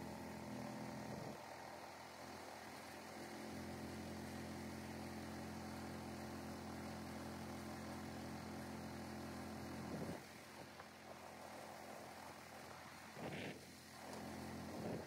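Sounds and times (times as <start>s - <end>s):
air compressor droning: 0.0s - 7.5s.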